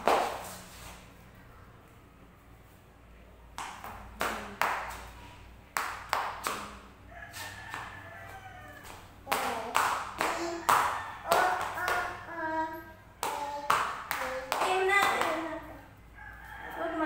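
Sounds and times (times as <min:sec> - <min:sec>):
sharp claps: 0:05.7 - 0:06.8, 0:08.8 - 0:12.2, 0:13.2 - 0:15.4
rooster crowing faintly: 0:07.1 - 0:09.1, 0:10.2 - 0:12.3, 0:16.0 - 0:17.0.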